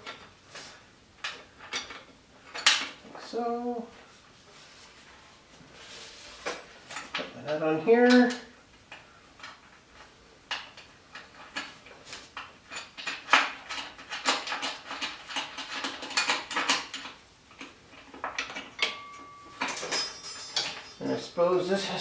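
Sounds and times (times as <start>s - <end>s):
metal parts clicking: 12.4s - 21.1s.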